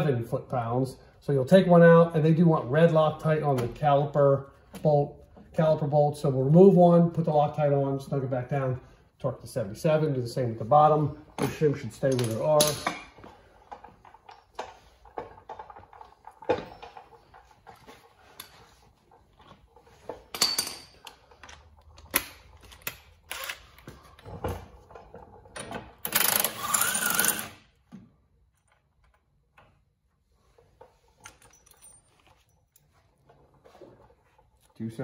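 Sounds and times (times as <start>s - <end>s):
metal tools clinking: 11.3s - 18.7s, 19.6s - 22.9s, 30.8s - 33.6s.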